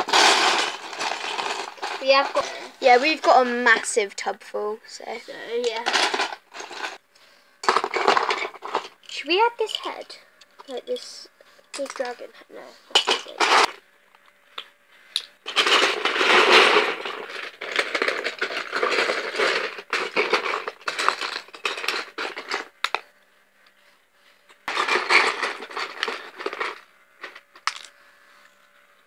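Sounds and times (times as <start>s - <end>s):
plastic bricks rattling: 0.0s - 3.4s, 5.6s - 7.0s, 7.6s - 10.1s, 11.8s - 12.2s, 12.9s - 13.8s, 15.2s - 23.0s, 24.6s - 27.9s.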